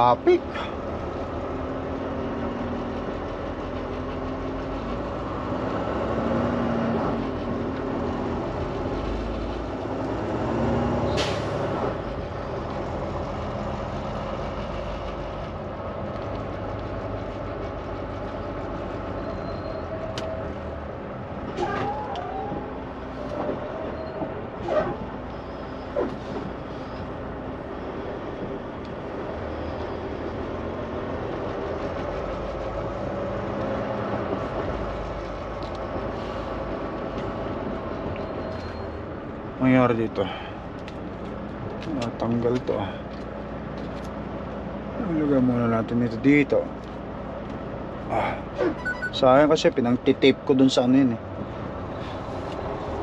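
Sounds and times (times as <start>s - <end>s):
road noise: 0.0s - 53.0s
squeak: 19.1s - 20.4s, 23.6s - 27.0s, 38.2s - 39.0s, 48.6s - 49.2s.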